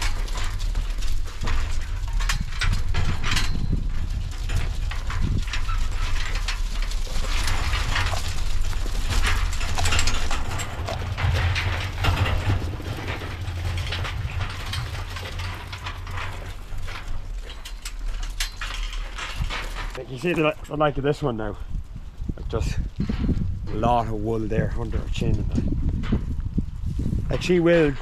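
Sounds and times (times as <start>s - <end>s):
metal gates rattling: 0.0s - 21.4s, 27.3s - 28.0s
low rumble: 0.0s - 28.0s
sheep hooves clattering: 0.0s - 28.0s.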